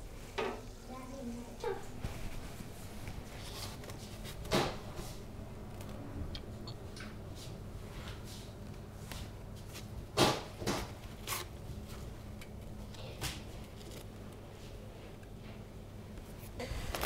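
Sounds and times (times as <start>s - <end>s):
low room hum: 0.0s - 17.0s
kitchen paper rustling: 1.8s - 5.2s.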